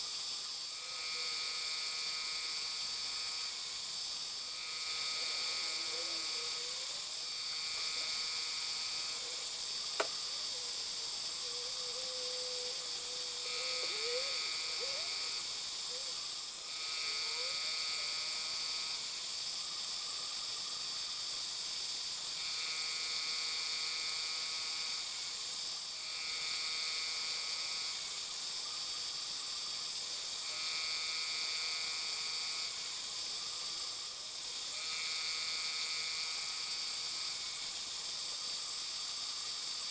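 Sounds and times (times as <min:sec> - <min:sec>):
milling machine spindle whine: 0:00.0 - 0:28.3, 0:29.4 - 0:39.9
sharp click: 0:10.0 - 0:10.2.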